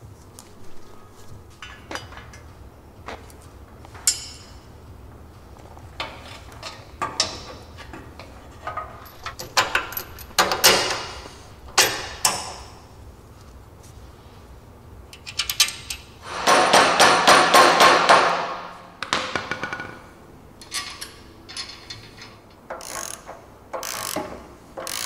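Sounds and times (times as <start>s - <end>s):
metal parts clanking and knocking: 1.6s - 2.5s, 5.9s - 12.7s, 15.2s - 20.0s, 20.6s - 25.0s.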